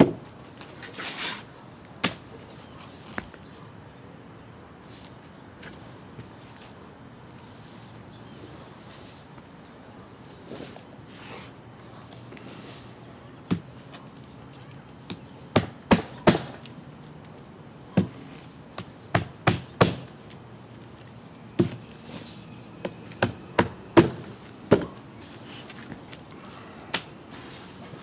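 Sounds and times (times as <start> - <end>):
hammer striking nails: 19.1 - 20.1.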